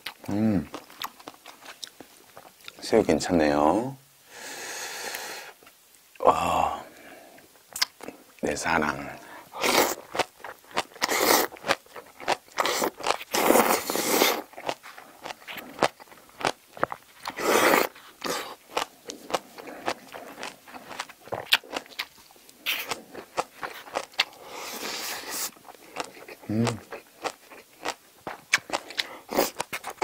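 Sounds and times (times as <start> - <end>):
crunchy chewing: 0.0 - 2.8, 9.1 - 30.0
slurping: 9.2 - 10.2, 10.8 - 11.6, 12.6 - 16.0, 17.2 - 27.0.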